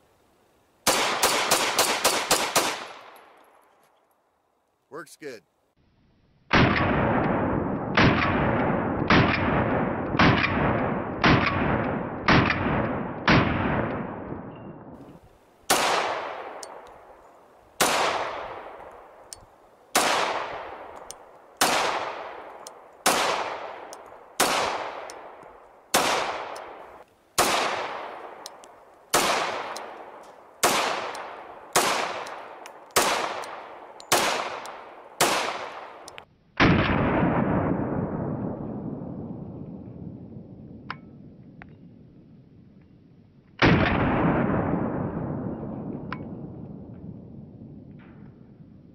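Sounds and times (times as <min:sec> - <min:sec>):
pistol shots with echo: 0:00.9 - 0:03.2, 0:15.7 - 0:16.9, 0:17.8 - 0:19.2, 0:19.9 - 0:38.2.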